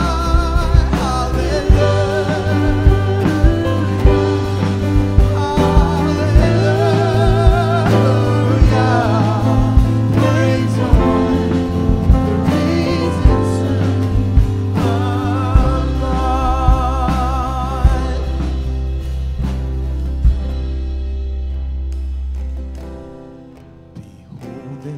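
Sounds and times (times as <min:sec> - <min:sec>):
person singing: 0:00.0 - 0:19.0, 0:24.3 - 0:24.9
steady drum beat: 0:00.0 - 0:23.2
bass guitar: 0:00.0 - 0:24.9.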